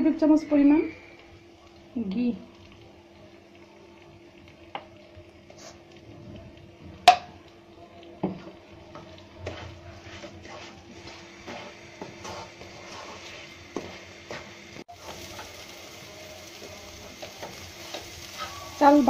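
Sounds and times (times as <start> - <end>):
rice sizzling in a pan: 0.0 - 19.0
wooden spoon scraping a pan: 9.0 - 15.5.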